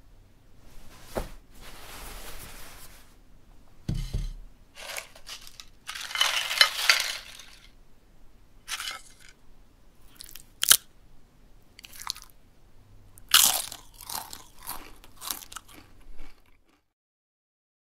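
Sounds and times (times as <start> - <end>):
chip crunching: 4.8 - 7.7, 8.7 - 9.4, 10.1 - 10.9, 11.8 - 12.4, 13.2 - 16.8
chewing crunches: 10.1 - 10.9, 11.8 - 12.4, 13.2 - 16.8.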